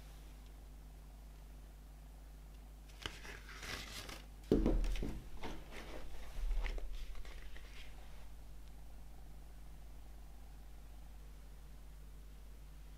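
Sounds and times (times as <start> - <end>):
cardboard rustling and sliding: 3.0 - 8.2
cardboard thump on wooden table: 4.5 - 5.6
light knocks of cardboard on wood: 4.5 - 5.6.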